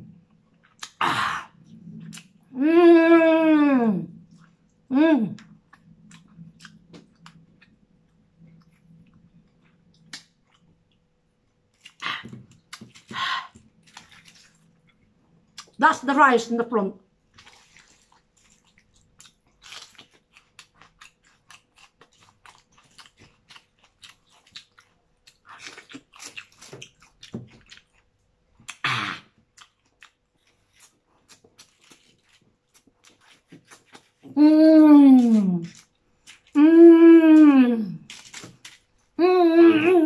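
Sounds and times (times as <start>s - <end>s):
closed-mouth humming voice: 2.5s - 4.2s, 4.9s - 5.5s, 34.3s - 35.8s, 36.6s - 38.1s, 39.2s - 40.0s
wet chewing: 5.4s - 11.0s, 11.7s - 15.8s, 17.3s - 34.4s, 35.1s - 36.6s, 38.0s - 39.1s
crab shells cracking: 38.1s - 38.9s.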